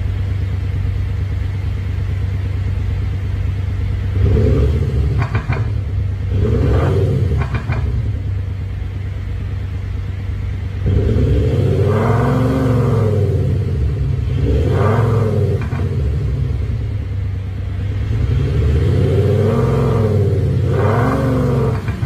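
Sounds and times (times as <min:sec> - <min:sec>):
synthesized engine exhaust idling: 0:00.0 - 0:22.0
engine revving: 0:03.8 - 0:08.5, 0:10.6 - 0:22.0
exhaust pops: 0:04.2 - 0:08.2, 0:15.5 - 0:17.2, 0:20.7 - 0:22.0.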